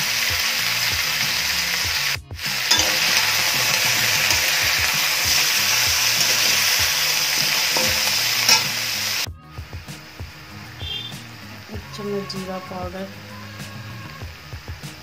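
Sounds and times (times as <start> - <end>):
vegetables sizzling in oil: 0.0 - 9.3, 10.2 - 15.0
metal spatula scraping pan: 2.7 - 9.3.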